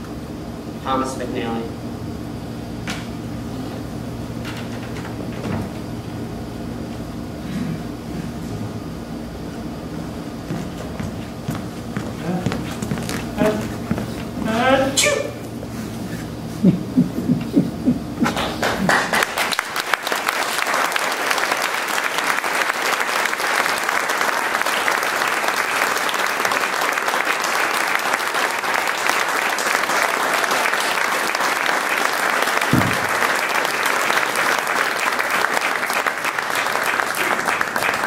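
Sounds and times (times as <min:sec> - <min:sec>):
audience applauding: 0:18.2 - 0:38.0.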